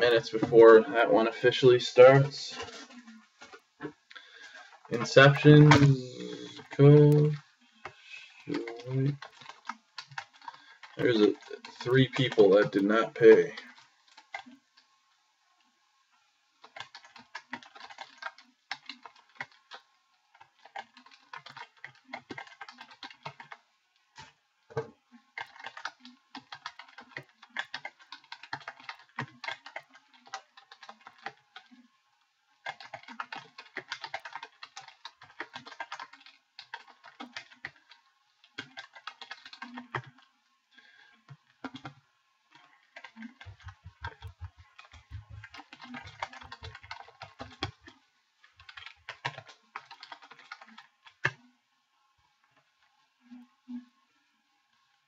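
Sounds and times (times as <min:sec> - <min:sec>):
computer keyboard typing: 0:04.2 - 0:14.6, 0:16.6 - 0:23.6, 0:25.2 - 0:31.9, 0:32.6 - 0:40.2, 0:41.3 - 0:42.0, 0:42.6 - 0:51.4.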